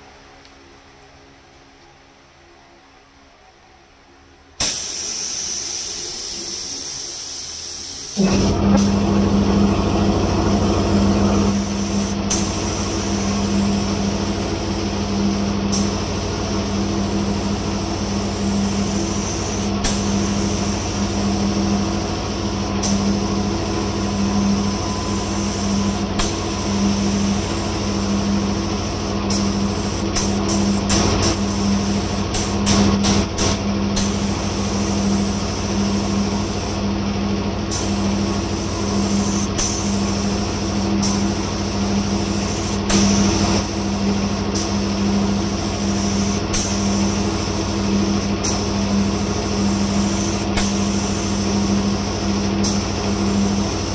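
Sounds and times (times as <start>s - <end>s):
spray gun hissing: 4.6s - 36.8s, 37.6s - 53.9s
low hum: 7.9s - 46.0s.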